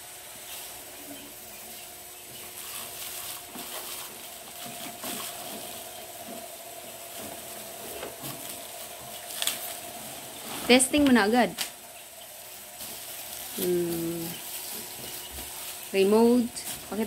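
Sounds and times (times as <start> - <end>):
faint steady hum: 0.0 - 17.0
plastic bag crinkling: 2.3 - 17.0.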